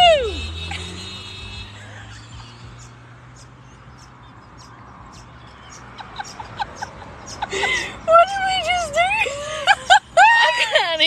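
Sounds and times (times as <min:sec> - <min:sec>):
woman whimpering and gasping: 0:07.4 - 0:08.1.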